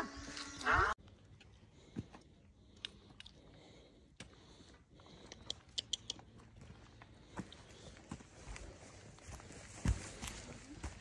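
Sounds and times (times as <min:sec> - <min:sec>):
footsteps on rocky trail: 0:01.0 - 0:11.0.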